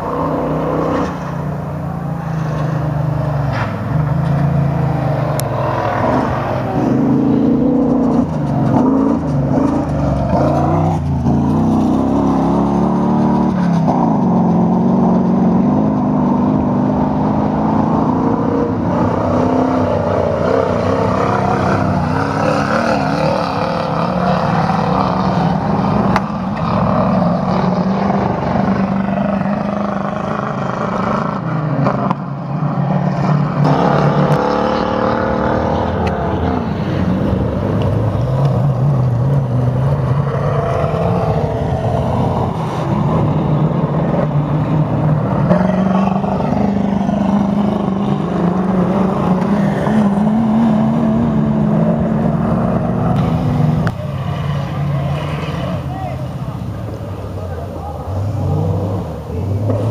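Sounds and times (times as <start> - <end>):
racing buggy engines revving: 0.0 - 59.9.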